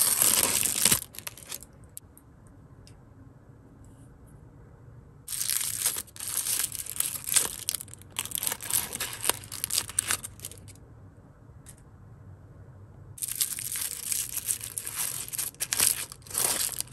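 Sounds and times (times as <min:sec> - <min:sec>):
plastic wrapper crinkling: 0:00.0 - 0:02.0, 0:05.3 - 0:10.8, 0:13.2 - 0:16.9.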